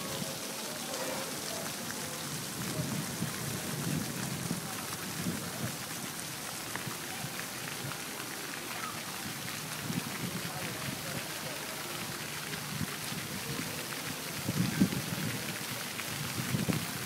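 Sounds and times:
steady outdoor hiss: 0.0s - 17.0s
wind buffeting the microphone: 2.2s - 8.0s, 9.2s - 11.3s, 12.0s - 17.0s.

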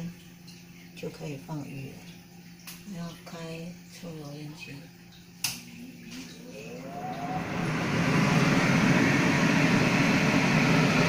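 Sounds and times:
extractor fan motor whine: 6.3s - 11.0s.

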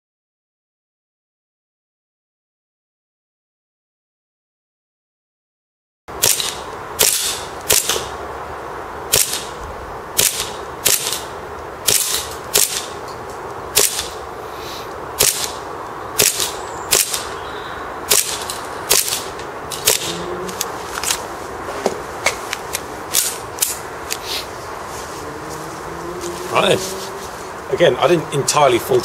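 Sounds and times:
airsoft pistol shots: 6.2s - 8.1s, 9.1s - 9.5s, 10.2s - 11.3s, 11.9s - 12.9s, 13.8s - 14.2s, 15.2s - 15.6s, 16.2s - 17.3s, 18.1s - 20.2s.

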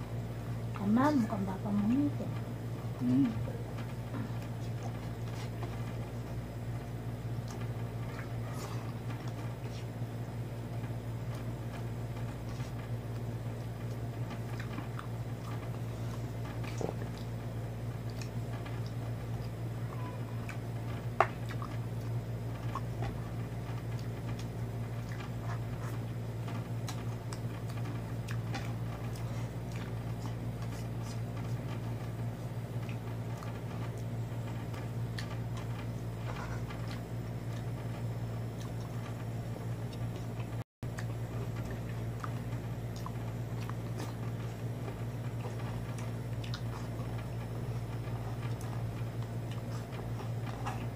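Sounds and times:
steady low hum: 0.0s - 50.9s
faint chewing: 0.6s - 50.9s.

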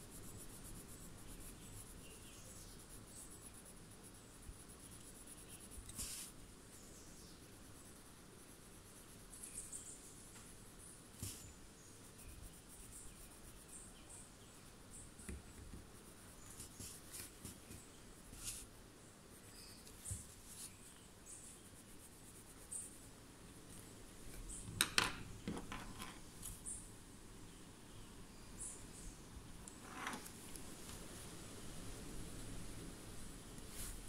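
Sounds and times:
pencil scratching on paper: 0.0s - 6.4s, 11.2s - 13.8s.

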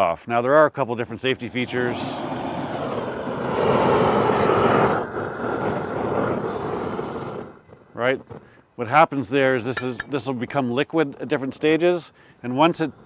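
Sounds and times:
propane torch flame rushing: 0.8s - 13.0s.

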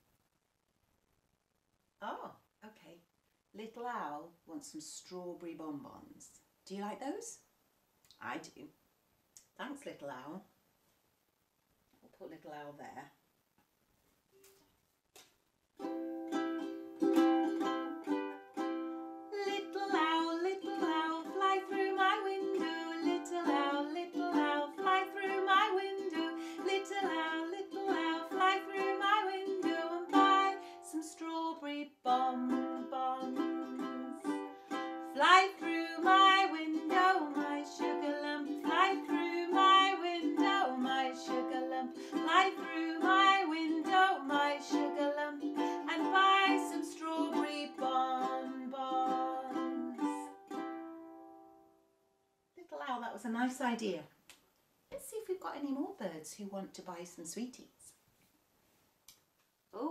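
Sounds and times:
strummed ukulele: 15.8s - 51.7s
woman singing: 19.3s - 50.4s.

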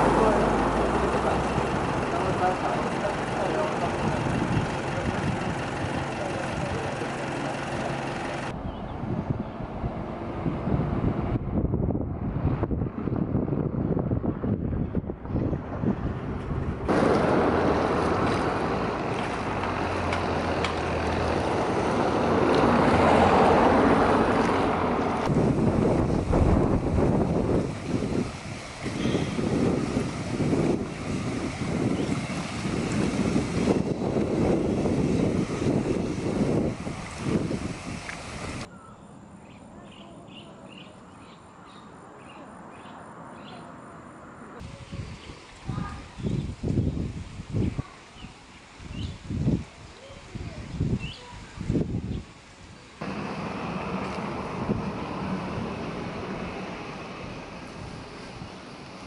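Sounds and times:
water washing at shore: 0.0s - 8.5s, 16.9s - 38.7s, 44.6s - 59.0s
wind on microphone: 8.5s - 19.7s, 20.8s - 38.7s, 44.6s - 52.4s, 53.0s - 59.0s.

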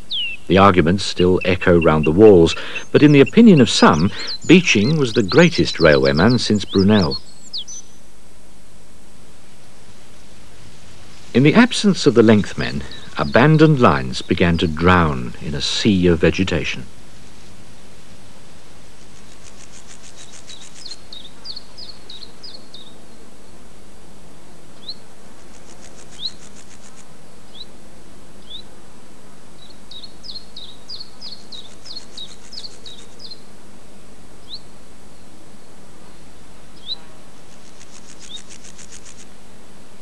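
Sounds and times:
insect chirring: 0.0s - 8.1s, 10.1s - 23.0s, 24.8s - 27.7s, 29.6s - 33.5s, 36.8s - 39.4s
small birds chirping: 0.0s - 8.1s, 11.3s - 16.9s, 19.0s - 23.2s, 24.8s - 27.8s, 28.4s - 28.8s, 29.6s - 33.5s, 34.4s - 35.3s, 36.0s - 39.3s
faint low hum: 0.0s - 40.0s
steady hiss: 0.0s - 40.0s.

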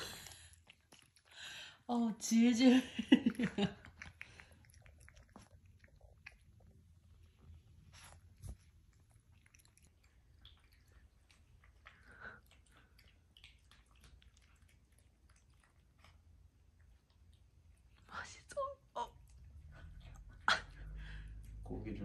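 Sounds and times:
dog chewing: 0.0s - 1.5s, 3.3s - 18.0s.

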